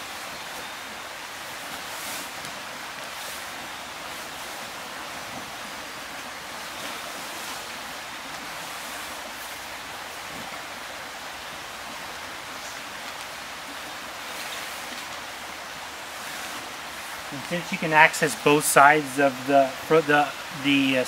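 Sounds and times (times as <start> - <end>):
outdoor rushing hiss: 0.0 - 5.8, 12.1 - 21.0
hammock fabric rustling: 0.0 - 20.6.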